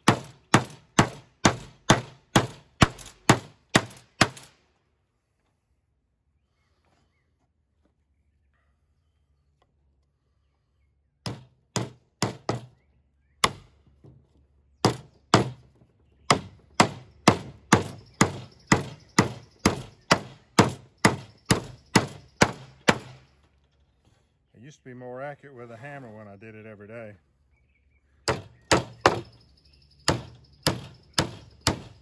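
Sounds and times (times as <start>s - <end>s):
hammer striking a nail: 0.0s - 4.5s, 11.2s - 12.8s, 13.4s - 13.7s, 14.8s - 15.7s, 16.3s - 23.3s, 28.2s - 29.4s, 30.0s - 32.0s.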